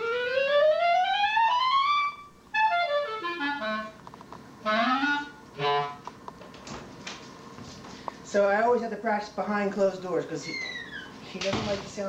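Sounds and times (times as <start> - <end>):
muffled clarinet glissandos: 0.0 - 4.0, 4.6 - 6.1.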